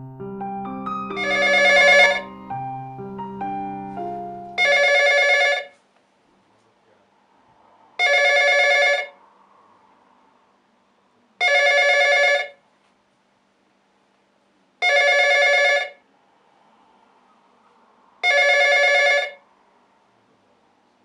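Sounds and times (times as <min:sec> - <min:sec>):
telephone ringing: 0:01.1 - 0:02.4, 0:04.6 - 0:05.8, 0:08.0 - 0:09.2, 0:11.4 - 0:12.6, 0:14.8 - 0:16.0, 0:18.2 - 0:19.4.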